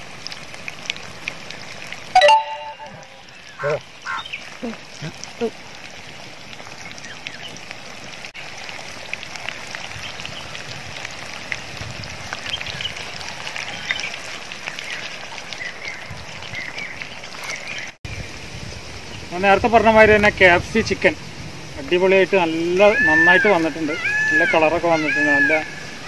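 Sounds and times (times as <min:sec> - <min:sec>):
chicken deep-frying in oil: 0:00.0 - 0:26.0.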